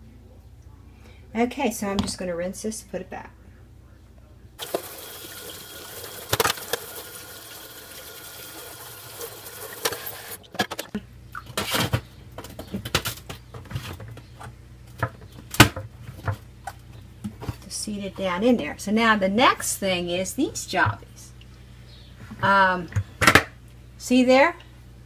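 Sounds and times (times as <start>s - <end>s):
sink sprayer hissing: 4.6s - 10.4s.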